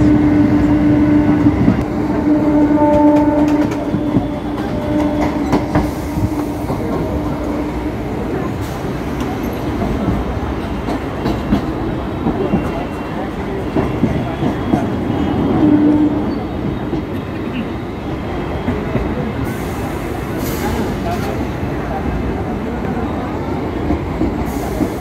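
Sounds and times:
train wheels rumbling on rails: 0.0s - 25.0s
clacks over rail joints: 9.2s - 13.0s.

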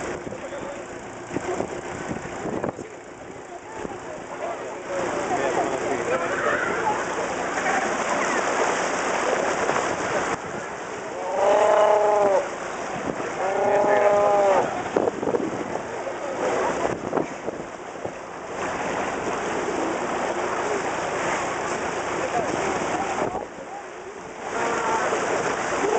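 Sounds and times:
sea waves washing: 0.0s - 25.9s
sea lion bellows: 11.1s - 12.5s, 13.2s - 14.9s
sea lions calling: 11.1s - 12.5s, 13.2s - 14.8s.

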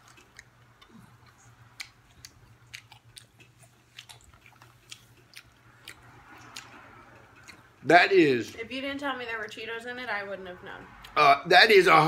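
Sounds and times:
close chewing crunches: 0.0s - 7.8s.

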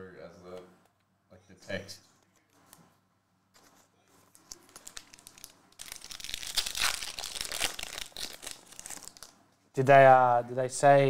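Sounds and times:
foil wrapper tearing: 4.5s - 9.3s.

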